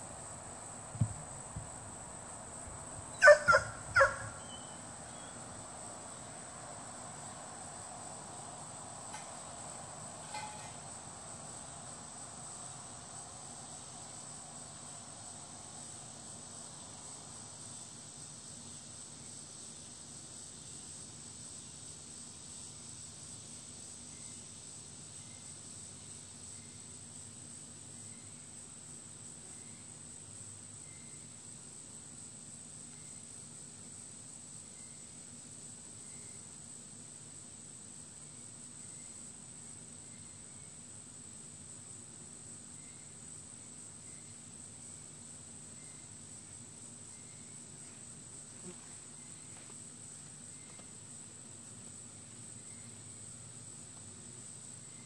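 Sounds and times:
crickets chirring: 0:00.0 - 0:55.0
short loud animal calls: 0:03.2 - 0:04.7.

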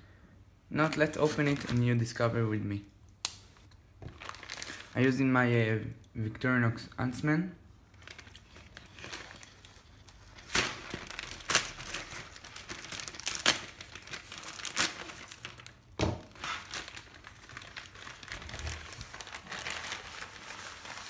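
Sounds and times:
plastic bag crinkling and tearing: 0:00.9 - 0:02.3, 0:04.0 - 0:05.3, 0:07.8 - 0:21.0.

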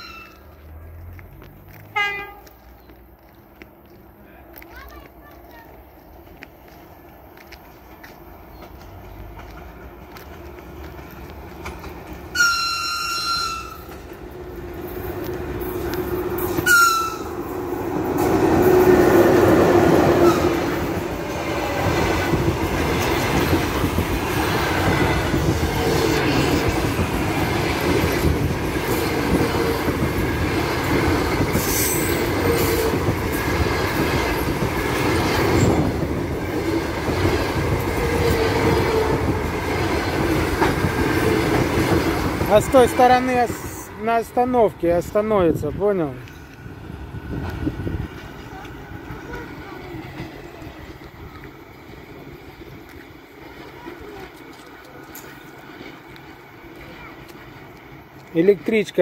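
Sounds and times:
train wheels rumbling and clattering: 0:00.0 - 0:59.0
train horn: 0:01.9 - 0:02.6, 0:12.3 - 0:13.9, 0:16.3 - 0:17.4, 0:19.8 - 0:20.8.

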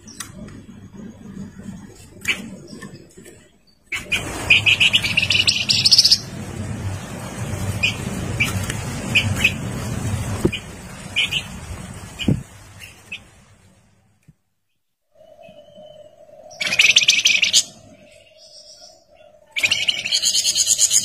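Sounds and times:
songbird singing: 0:00.0 - 0:06.4, 0:07.4 - 0:13.4, 0:14.2 - 0:21.0
low background rumble: 0:00.0 - 0:14.3.

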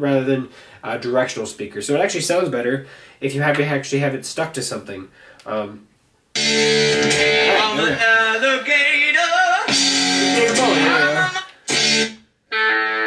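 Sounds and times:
guitar track: 0:06.4 - 0:13.0
song with guitar and singing: 0:06.4 - 0:13.0.

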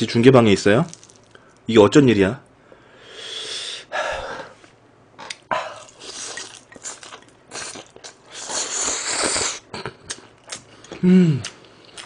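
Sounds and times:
person chewing food: 0:05.2 - 0:12.0
slurping noodles: 0:05.8 - 0:09.6.

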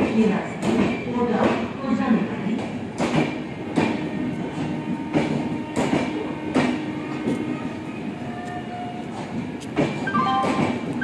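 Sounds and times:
train rumble: 0:00.0 - 0:11.0
train wheels clacking over rail joints: 0:02.6 - 0:07.5, 0:08.4 - 0:11.0.

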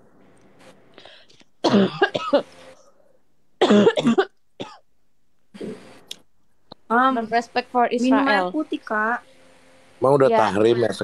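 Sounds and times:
person coughing: 0:01.6 - 0:02.5, 0:03.6 - 0:04.8.

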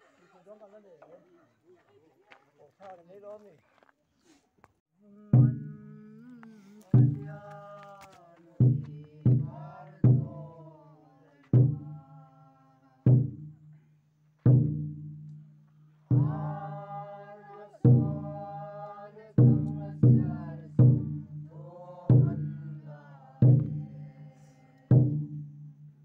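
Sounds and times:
large barrel drum beats: 0:05.4 - 0:06.0, 0:06.9 - 0:07.8, 0:08.6 - 0:10.6, 0:11.5 - 0:12.2, 0:13.1 - 0:13.8, 0:14.4 - 0:17.0, 0:17.8 - 0:18.6, 0:19.3 - 0:26.0
group chanting a song: 0:07.0 - 0:13.5, 0:16.0 - 0:25.5.

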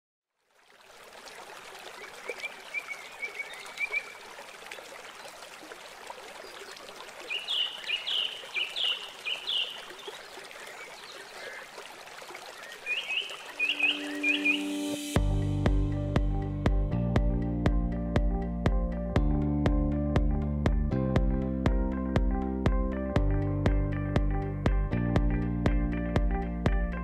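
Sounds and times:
flowing water rushing: 0:00.4 - 0:15.2
birds chirping: 0:06.4 - 0:11.8, 0:12.4 - 0:15.2.

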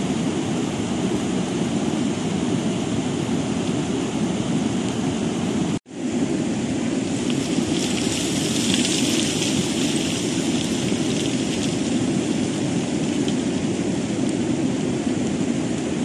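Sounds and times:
floodwater rushing: 0:06.8 - 0:15.7.

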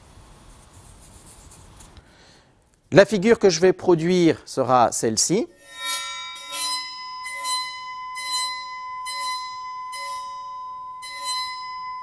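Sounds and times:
bow scratching metal edge: 0:05.5 - 0:12.0
metal plate ringing: 0:05.5 - 0:12.0.

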